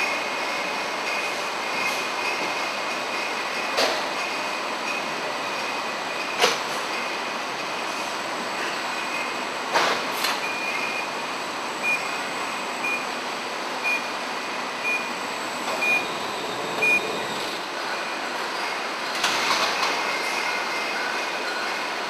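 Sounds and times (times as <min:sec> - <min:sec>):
machinery humming: 0:00.0 - 0:22.0
warning beeper beeping: 0:15.8 - 0:17.4.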